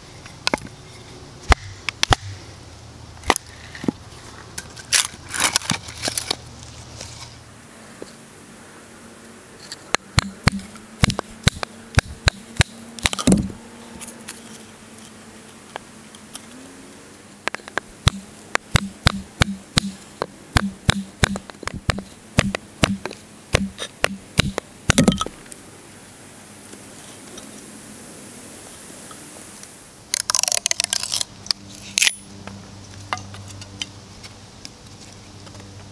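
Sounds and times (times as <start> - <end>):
knife cutting wood: 1.5 - 2.4, 10.2 - 13.6, 20.6 - 25.2.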